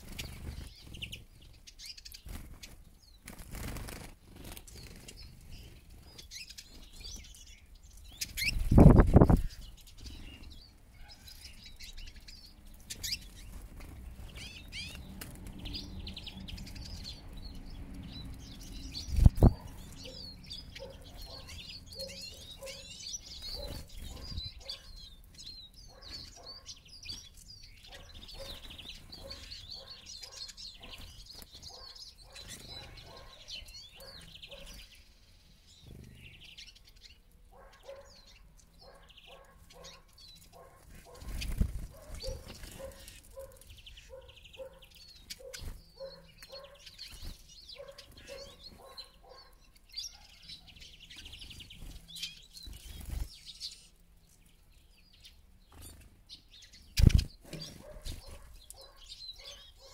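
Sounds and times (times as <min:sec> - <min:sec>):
wings fluttering: 0:00.0 - 0:07.2, 0:08.2 - 0:09.7, 0:12.8 - 0:16.8, 0:40.4 - 0:43.8, 0:51.4 - 0:53.7, 0:56.9 - 0:58.6
birds twittering: 0:00.0 - 0:59.9.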